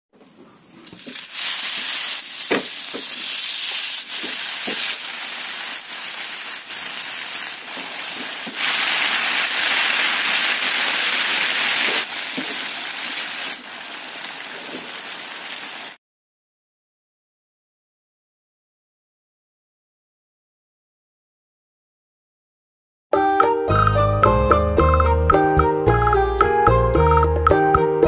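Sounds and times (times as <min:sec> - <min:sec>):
sauce and eggplant sizzling in oil: 0:00.9 - 0:16.0
wooden spatula knocking a pan: 0:02.5 - 0:03.2, 0:12.3 - 0:12.7.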